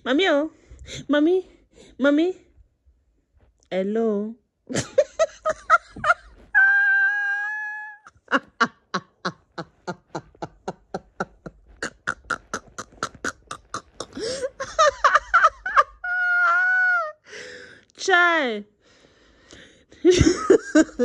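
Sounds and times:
person making vocal sounds: 9.5 - 15.0.

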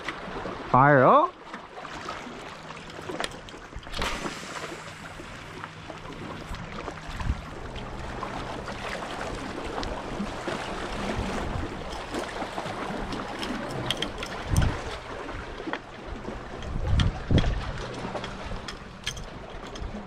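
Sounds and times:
waves lapping against rocks: 0.0 - 20.0
wind buffeting microphone: 6.4 - 20.0.

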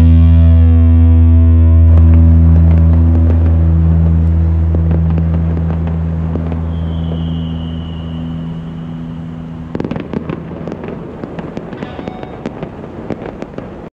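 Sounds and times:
low hum with high tone: 0.0 - 10.6
fireworks popping and crackling: 1.9 - 13.9.

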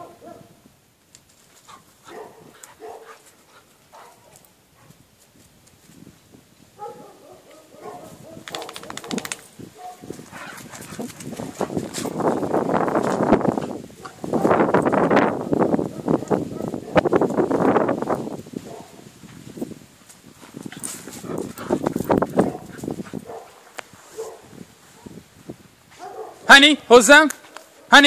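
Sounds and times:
dogs making short sounds: 7.5 - 12.2
scuffling and rustling: 8.0 - 15.0, 17.1 - 25.2.

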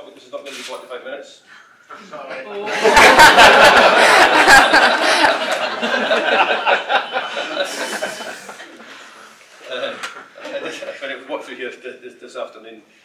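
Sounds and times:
room of people laughing: 2.3 - 11.3.

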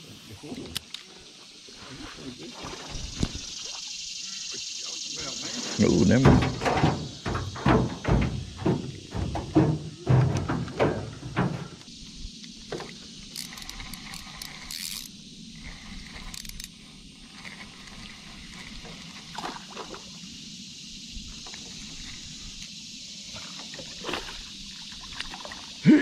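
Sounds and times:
steady high-pitched hiss: 0.0 - 26.0
fishing tackle knocking and scraping: 5.8 - 11.9.

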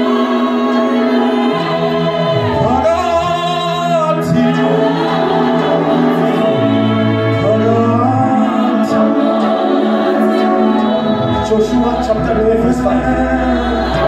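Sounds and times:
gospel choir singing: 0.0 - 14.0
bass notes: 10.6 - 14.0.

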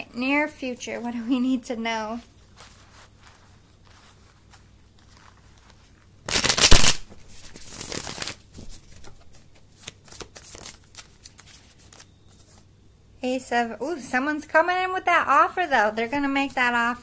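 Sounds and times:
cards being shuffled: 2.2 - 12.6.

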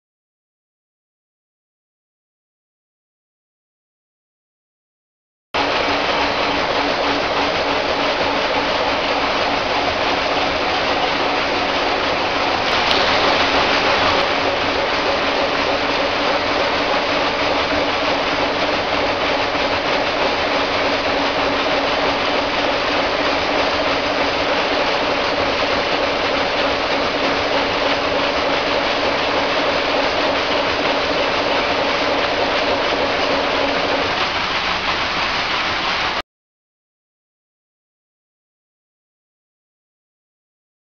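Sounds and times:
machinery hiss: 12.5 - 15.6.

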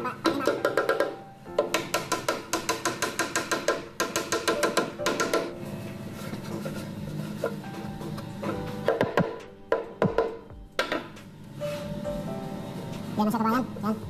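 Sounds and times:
music with quick percussive beat: 8.5 - 11.2.

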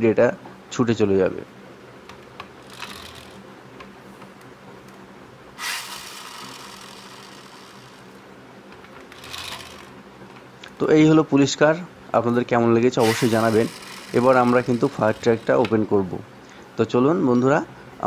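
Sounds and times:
toy car wheels whirring: 2.6 - 3.4, 5.6 - 8.2, 9.1 - 9.9, 13.0 - 15.7
toy car wheels scraping: 2.7 - 3.4, 5.6 - 8.0, 9.2 - 9.9, 13.0 - 15.7.

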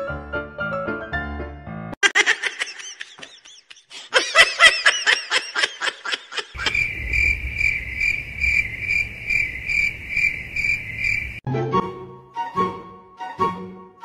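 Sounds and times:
high-pitched giggling laughter: 2.0 - 6.8
crickets chirping: 6.5 - 11.4.

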